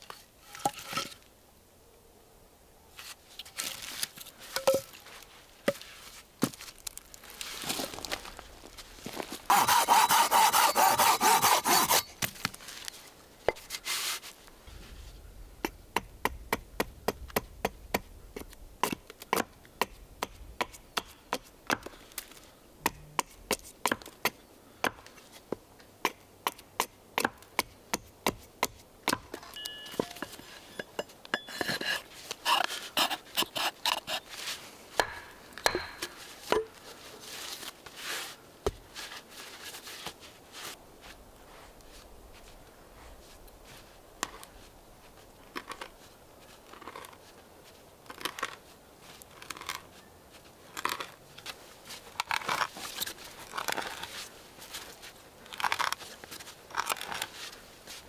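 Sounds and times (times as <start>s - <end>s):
hand auger boring wood: 9.5s - 12.1s
saw rasping: 9.5s - 12.2s, 31.4s - 34.3s
stick knocking on wood: 35.0s - 36.7s.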